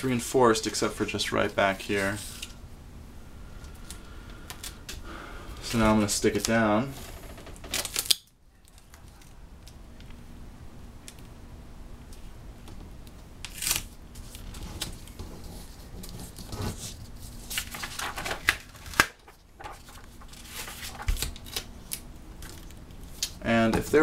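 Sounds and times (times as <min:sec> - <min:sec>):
tape and paper crinkling: 0:07.7 - 0:09.4, 0:13.4 - 0:24.0.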